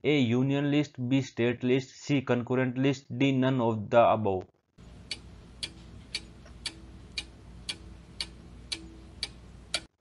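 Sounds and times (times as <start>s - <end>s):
clock ticking: 4.8s - 10.0s.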